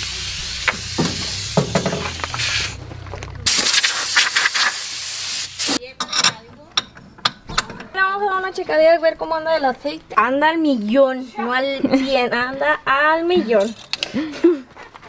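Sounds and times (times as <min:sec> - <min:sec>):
compressed air blow gun hissing: 0:00.0 - 0:02.8, 0:03.4 - 0:05.8.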